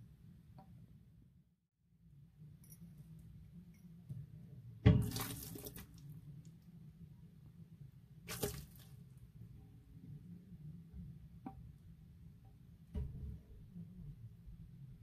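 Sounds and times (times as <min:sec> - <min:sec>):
frog lunging wet smacks: 0:08.3 - 0:08.9.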